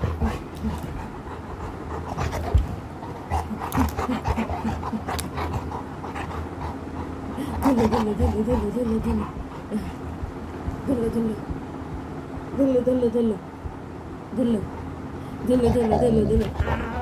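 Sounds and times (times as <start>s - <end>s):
dog panting hard: 0.0s - 11.1s.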